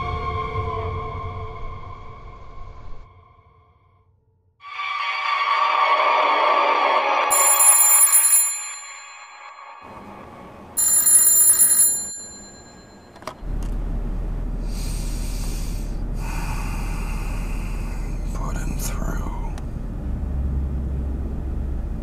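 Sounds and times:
telephone bell ringing: 7.3s - 10.2s, 10.8s - 13.4s
low hum and hiss: 12.3s - 22.0s.

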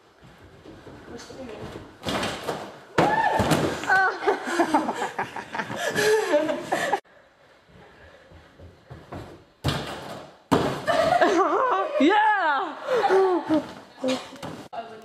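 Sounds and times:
gymnast landing on crash mats: 2.0s - 3.9s, 9.6s - 11.2s.

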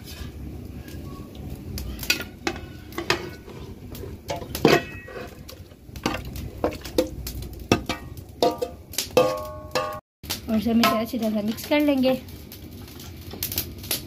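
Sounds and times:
metal dish knocking on pot: 7.7s - 10.0s.

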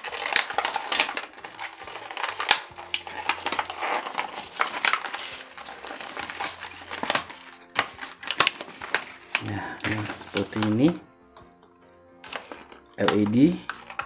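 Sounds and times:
packaging crinkling and tearing: 0.0s - 14.0s.

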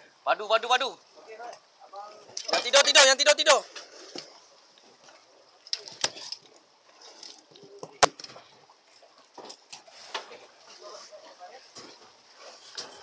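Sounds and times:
wind and sea hiss: 0.0s - 2.4s.

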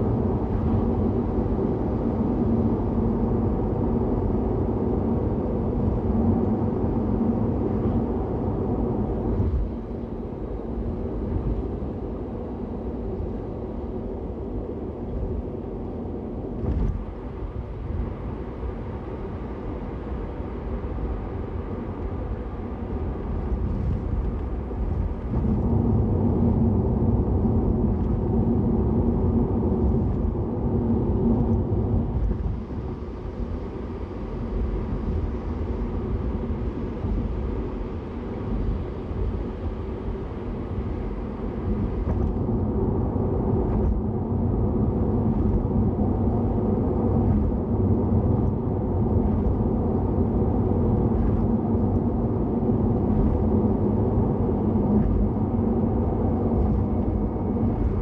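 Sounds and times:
car road and engine rumble: 0.0s - 58.0s.

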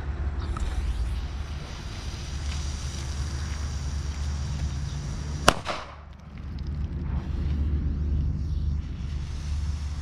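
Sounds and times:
firecracker fuse hiss: 0.6s - 5.9s, 7.1s - 10.0s
firecracker bang: 5.4s - 6.1s.

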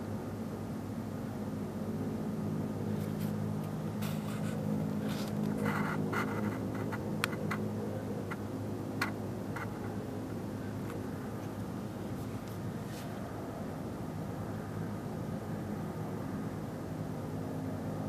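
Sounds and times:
low droning hum: 0.0s - 18.0s
light clicks and scrapes: 2.9s - 8.4s, 9.0s - 10.0s, 12.2s - 13.2s.

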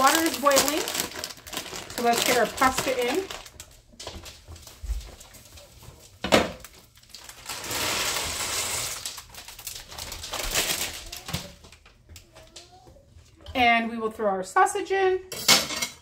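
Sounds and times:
dry pasta pouring: 0.0s - 11.3s
plastic bag crinkling: 0.0s - 12.7s.

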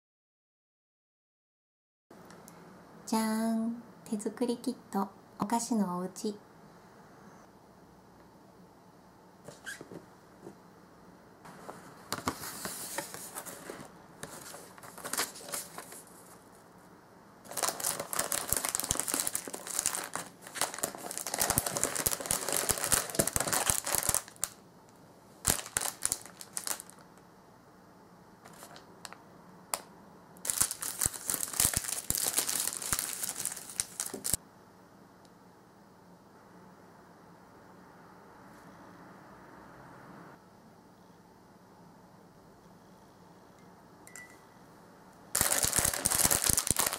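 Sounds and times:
plastic bags crinkling: 12.2s - 16.4s, 17.5s - 24.6s, 25.4s - 27.1s, 28.4s - 28.9s, 30.4s - 34.4s, 45.3s - 46.9s.

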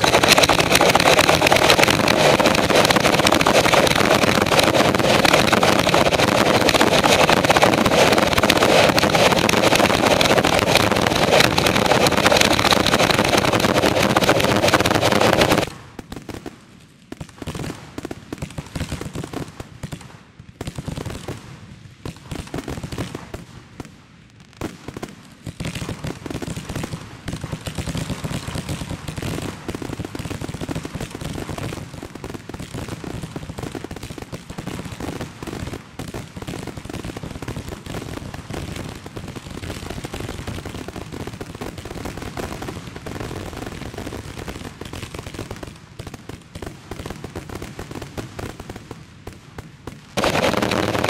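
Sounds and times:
firework shells bursting: 0.0s - 15.7s, 50.2s - 51.0s.

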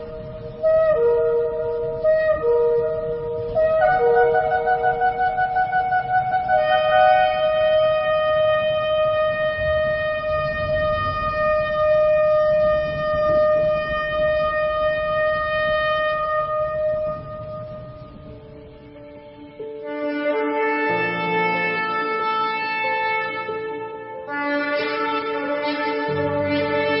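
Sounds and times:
ram's horn blast: 19.8s - 27.0s.

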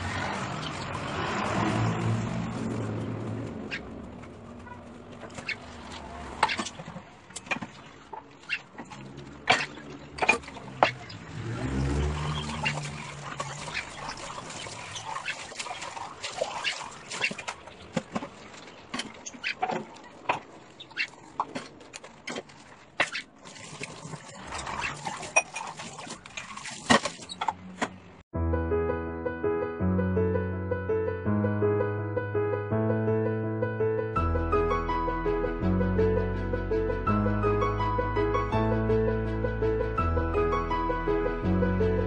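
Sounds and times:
tap water running: 5.3s - 20.0s, 23.3s - 27.4s.

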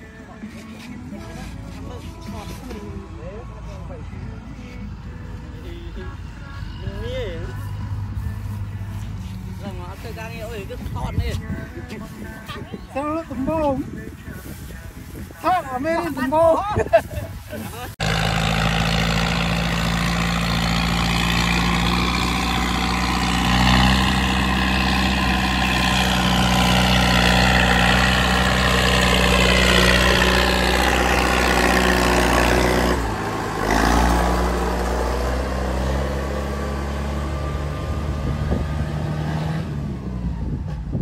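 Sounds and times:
tractor diesel engine running: 17.9s - 41.0s.

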